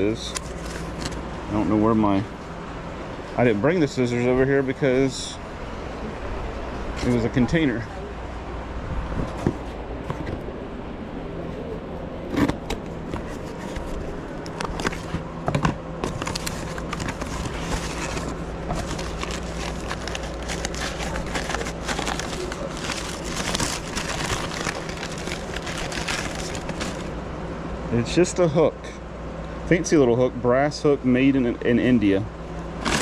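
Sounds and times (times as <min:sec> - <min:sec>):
packing paper crinkling: 0:12.3 - 0:27.2, 0:32.8 - 0:33.0.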